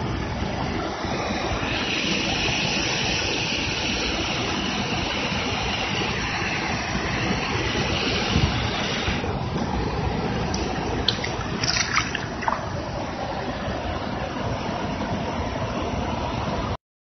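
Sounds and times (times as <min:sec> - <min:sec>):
water rushing over rocks: 0:10.6 - 0:13.2.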